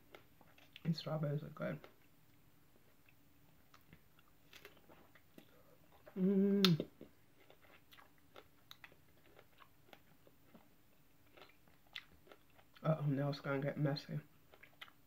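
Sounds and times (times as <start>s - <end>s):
person chewing: 0.0s - 0.8s, 1.8s - 13.0s, 14.4s - 15.0s
person humming mmm: 6.1s - 7.0s.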